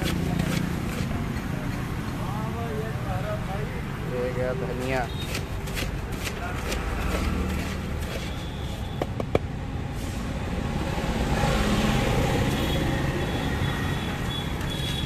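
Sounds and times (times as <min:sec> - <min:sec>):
street traffic noise: 0:00.0 - 0:15.0
sharp taps: 0:09.0 - 0:09.5
vehicle passing: 0:09.5 - 0:14.2.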